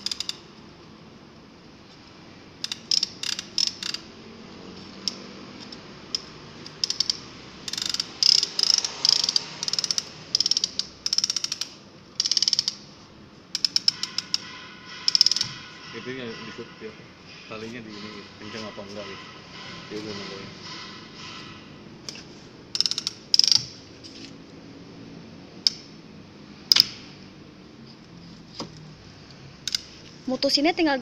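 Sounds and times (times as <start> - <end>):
strap tensioner ratchet clicking: 0.0 - 0.5, 2.6 - 4.1, 4.8 - 12.9, 13.5 - 15.8, 22.0 - 23.8, 25.6 - 25.9, 26.7 - 27.0, 29.6 - 30.0.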